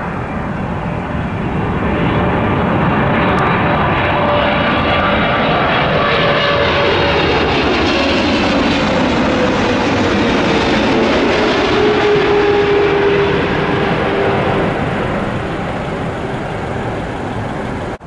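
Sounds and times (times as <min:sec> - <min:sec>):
jet airliner flying overhead: 0:00.0 - 0:18.0.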